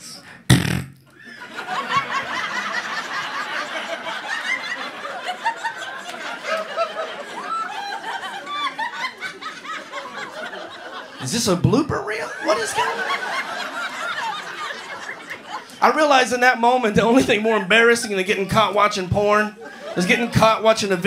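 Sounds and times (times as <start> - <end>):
loud blast into microphone: 0.5 - 1.0
audience laughing: 1.2 - 11.3, 12.0 - 15.8, 19.6 - 20.5.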